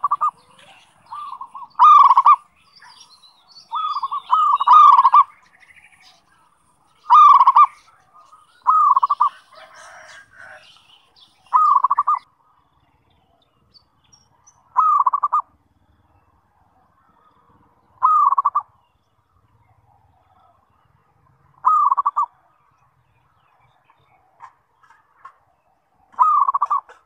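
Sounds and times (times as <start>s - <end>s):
dove cooing: 0.0s - 12.2s, 14.7s - 15.6s, 18.0s - 18.7s, 21.6s - 22.4s, 26.1s - 27.0s.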